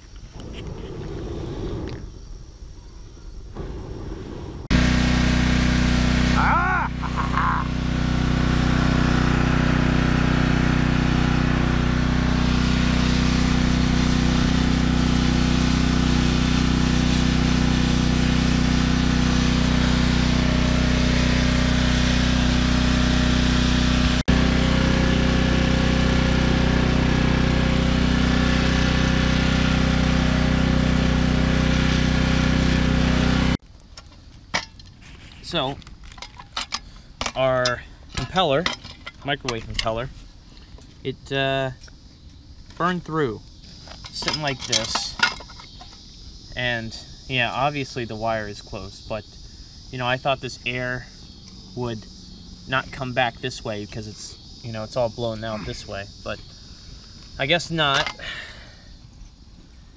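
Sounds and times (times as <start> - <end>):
blower fan humming with air rush: 3.6 - 33.6.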